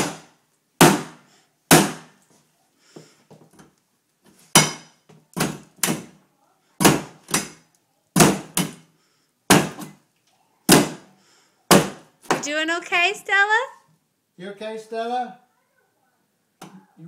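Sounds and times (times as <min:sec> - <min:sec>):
crowbar thudding on wooden door: 0:06.8 - 0:07.6, 0:08.2 - 0:08.8, 0:09.5 - 0:10.0, 0:10.7 - 0:11.1.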